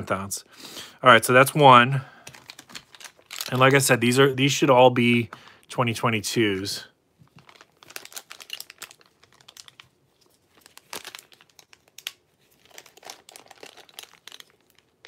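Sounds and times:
plastic packaging crinkling: 0:02.2 - 0:04.2, 0:07.2 - 0:15.0.

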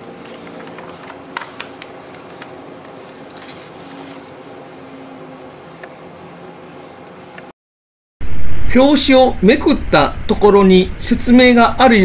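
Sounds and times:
notebook pages turning: 0:00.0 - 0:04.5.

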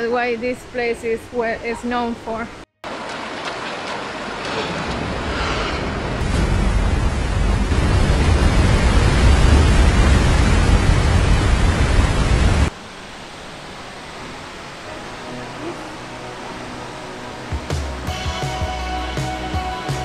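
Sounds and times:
waterfall rushing: 0:02.9 - 0:18.0.

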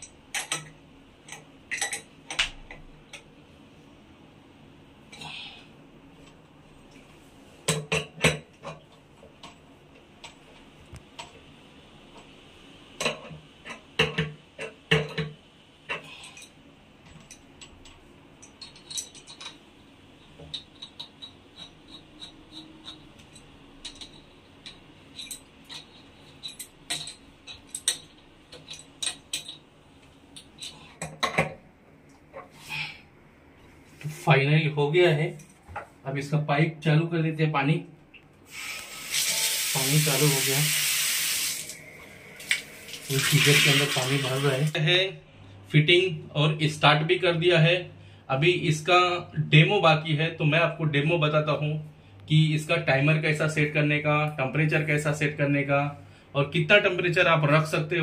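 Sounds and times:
wrench clinking on metal fittings: 0:20.5 - 0:29.6.

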